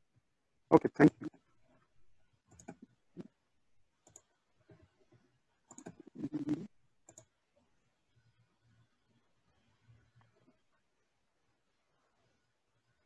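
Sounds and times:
computer mouse clicks: 2.5s - 3.0s, 4.0s - 4.9s, 5.7s - 7.3s.

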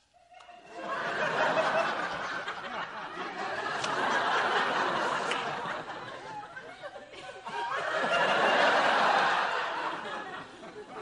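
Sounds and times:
studio audience laughing: 0.7s - 11.0s.

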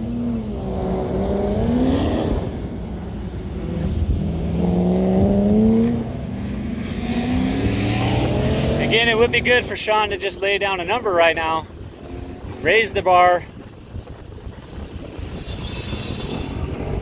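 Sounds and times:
truck engine revving: 3.6s - 13.2s.

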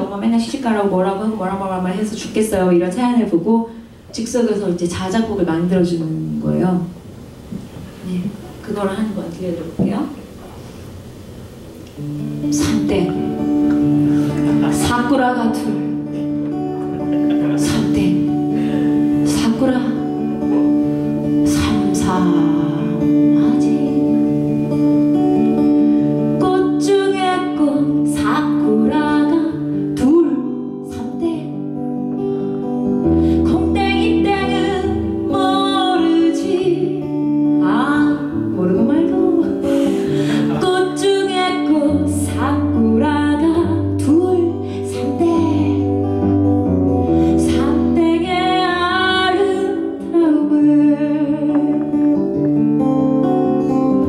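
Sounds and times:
strummed acoustic guitar: 12.0s - 54.0s
woman singing: 12.4s - 13.6s, 14.7s - 16.1s, 17.5s - 24.5s, 26.3s - 31.8s, 33.3s - 46.1s, 47.3s - 52.4s.

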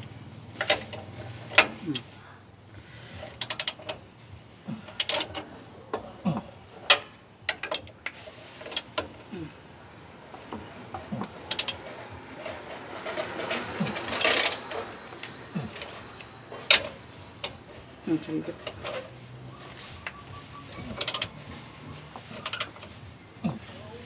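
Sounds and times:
ratchet wrench clicking: 3.2s - 4.0s, 4.9s - 5.5s, 6.9s - 9.2s, 11.4s - 11.9s, 20.9s - 21.4s, 22.4s - 22.9s.

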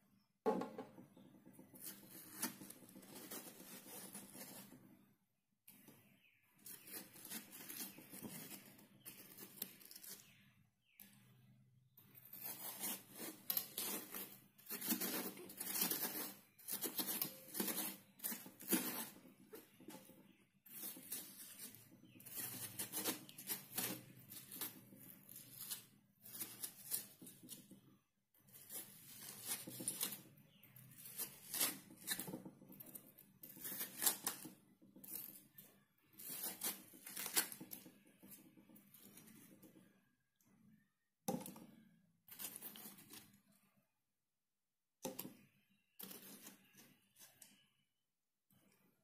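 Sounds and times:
spoon scraping watermelon rind: 6.1s - 10.4s, 12.2s - 27.7s.

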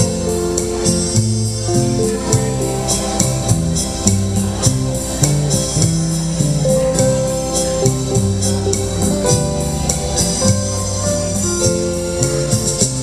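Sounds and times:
rumba dance music: 0.0s - 13.0s.

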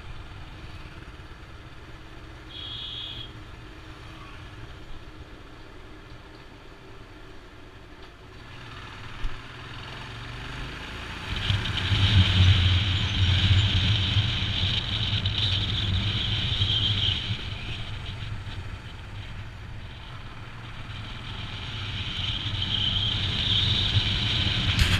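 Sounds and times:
motorcycle engine running: 8.4s - 24.9s.

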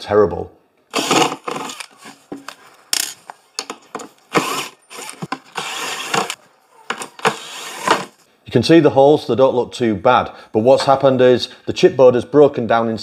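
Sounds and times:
cordless drill bursts: 0.9s - 1.9s, 4.3s - 6.4s, 7.2s - 8.1s
screws grating and clicking: 3.0s - 6.4s.

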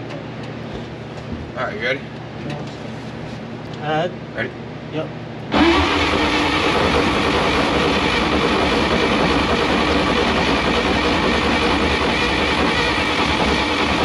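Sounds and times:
truck engine running loudly: 5.6s - 14.0s.

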